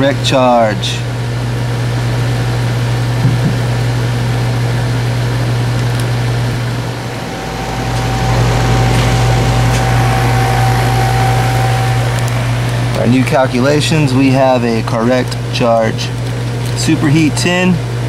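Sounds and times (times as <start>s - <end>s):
heat pump hum: 0.0s - 18.0s
faint steady whine: 5.4s - 16.3s.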